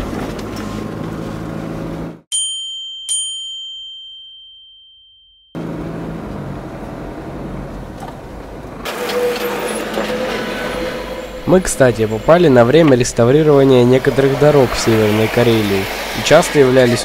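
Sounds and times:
car engine drone: 0.0s - 2.2s, 5.6s - 17.0s
road noise inside car: 0.0s - 2.3s, 5.6s - 17.0s
bell-like chime: 2.3s - 5.6s.

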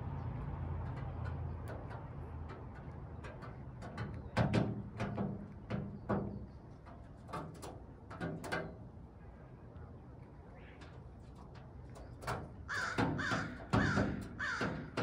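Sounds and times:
beaks tapping on metal lid: 12.0s - 15.0s.

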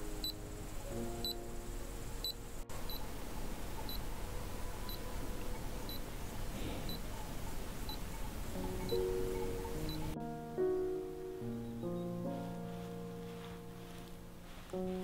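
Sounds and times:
timer remote beeping: 2.2s - 3.1s, 3.8s - 4.1s, 9.8s - 10.2s.

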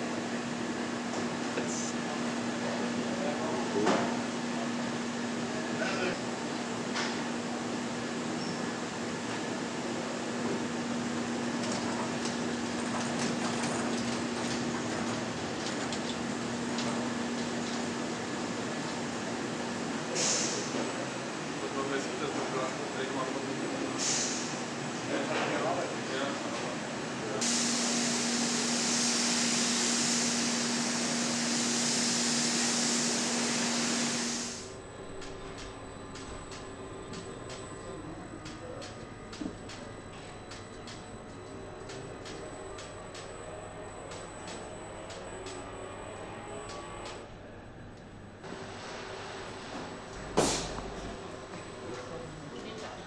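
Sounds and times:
machinery hum: 0.0s - 53.0s
bright hiss of ventilation: 27.3s - 34.7s.

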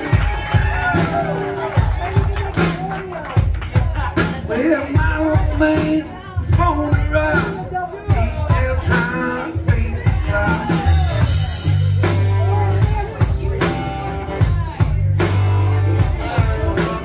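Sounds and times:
bass guitar: 0.0s - 17.0s
drum kit: 0.0s - 17.0s
electric guitars: 0.0s - 17.0s
lead vocals: 0.0s - 17.0s.

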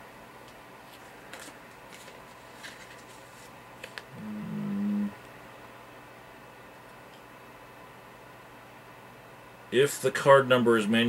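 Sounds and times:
foil packet crinkling: 0.9s - 4.1s
man humming: 4.1s - 5.2s.

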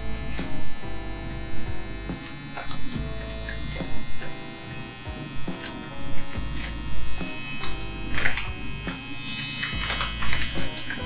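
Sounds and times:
vacuum pump whining: 0.0s - 11.0s.

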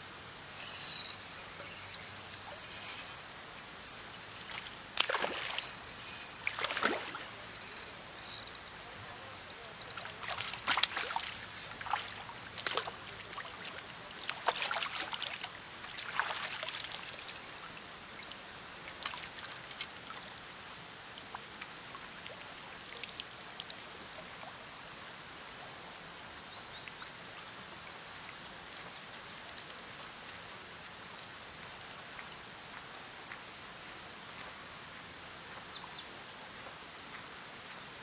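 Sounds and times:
water dripping and trickling: 0.6s - 8.8s, 9.4s - 25.3s
fish splashing in water: 4.2s - 8.3s.

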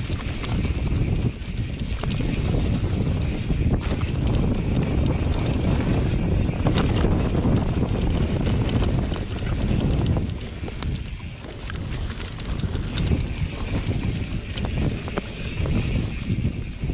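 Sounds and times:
bike clicks and rattles: 0.0s - 16.9s
bike tyres rumbling on dirt: 0.0s - 16.9s
wind on microphone: 0.0s - 16.9s.

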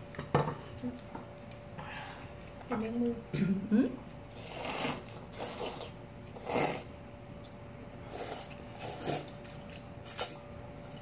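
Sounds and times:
noodles being slurped: 4.3s - 7.0s, 8.0s - 10.4s.

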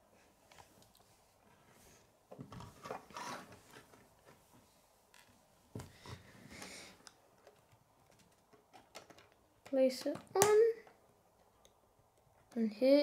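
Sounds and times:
plastic toy bricks clicking: 7.0s - 11.8s.

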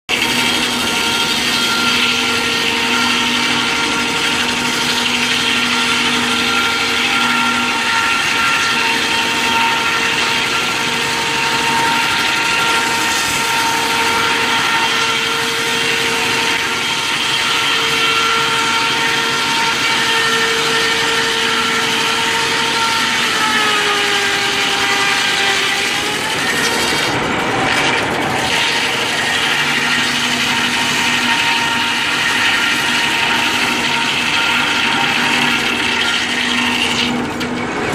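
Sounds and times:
circular saw cutting log: 0.1s - 37.9s.

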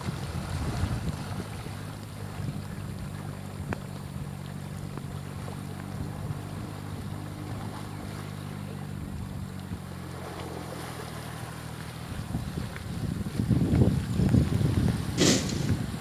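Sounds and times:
wind noise on microphone: 0.0s - 3.0s, 12.1s - 16.0s
low engine-like drone: 0.0s - 12.9s
fast-flowing river water: 0.0s - 16.0s.

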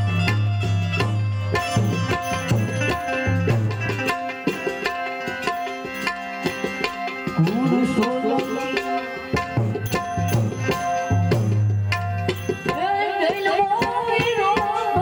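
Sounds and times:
tabla playing fast rhythm: 0.0s - 15.0s
melodic instruments sustained notes: 5.6s - 11.6s.

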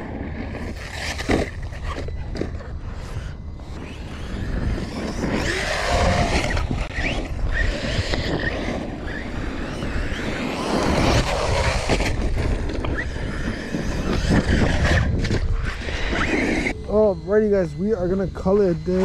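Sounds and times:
wind rumble on microphone: 0.0s - 19.0s
toy truck electric motor whining: 0.1s - 19.0s.

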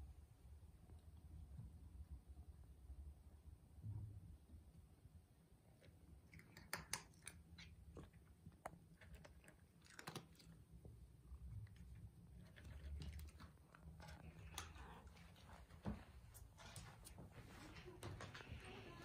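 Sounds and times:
cat crunching dry kibble: 6.1s - 15.8s.

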